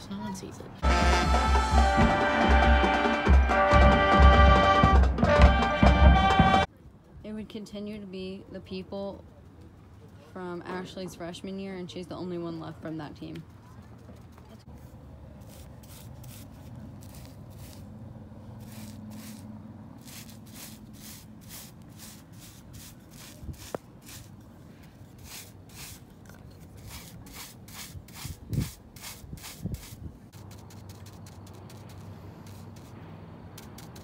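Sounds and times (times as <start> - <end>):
paintbrush scrubbing on concrete: 14.7 - 33.0.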